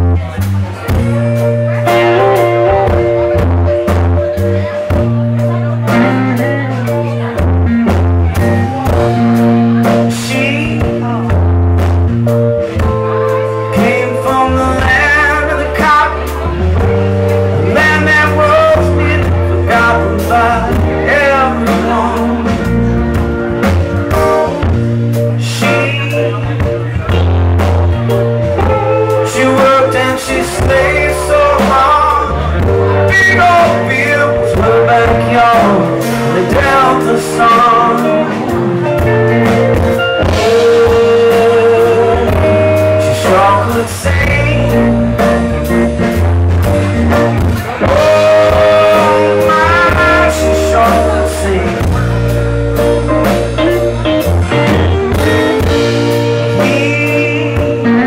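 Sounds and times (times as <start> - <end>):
man singing: 0.0 - 11.8, 12.6 - 46.2, 46.8 - 58.0
live band playing: 0.0 - 58.0.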